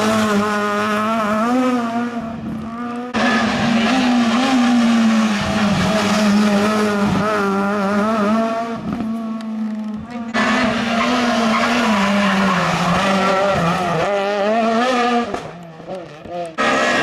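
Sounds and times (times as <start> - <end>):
rally car engine revving: 0.0 - 17.0.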